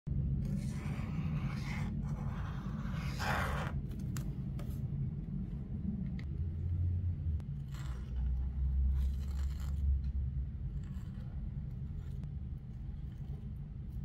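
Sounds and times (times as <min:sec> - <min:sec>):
steady low hum: 0:00.1 - 0:14.0
marker scratching on paper: 0:00.4 - 0:03.8, 0:10.7 - 0:14.0.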